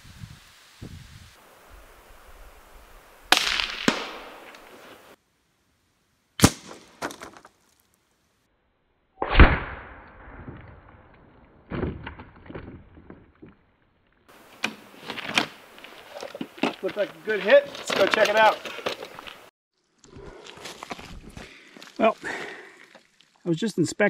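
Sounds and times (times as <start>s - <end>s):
rifle shots: 3.3s - 4.5s, 6.4s - 7.0s.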